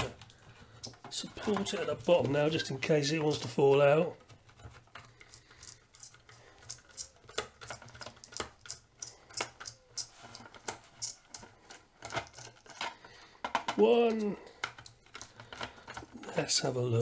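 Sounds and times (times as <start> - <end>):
screwdriver clicking on screw: 5.2 - 12.5.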